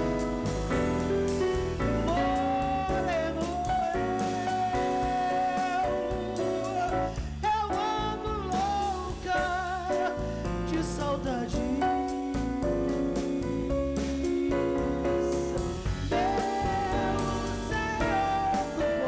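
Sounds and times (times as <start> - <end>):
band playing samba: 0.0 - 11.1, 12.2 - 19.0
woman singing: 2.0 - 19.0.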